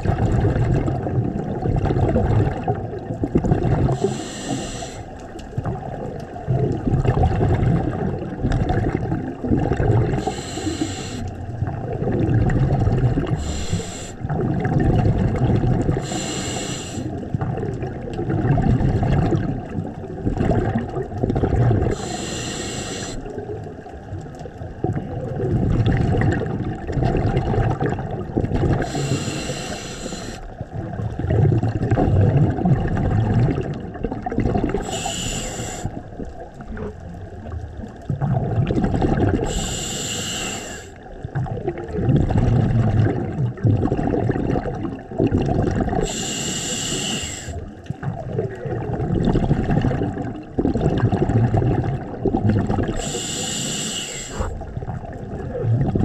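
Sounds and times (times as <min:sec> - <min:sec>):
exhaled bubbles rumbling: 0:00.0 - 0:56.0
regulator hissing inhalations: 0:04.0 - 0:05.1, 0:10.2 - 0:11.3, 0:13.4 - 0:14.2, 0:16.0 - 0:17.1, 0:21.9 - 0:23.2, 0:28.8 - 0:30.5, 0:34.8 - 0:35.9, 0:39.5 - 0:41.0, 0:46.0 - 0:47.6, 0:53.0 - 0:54.6.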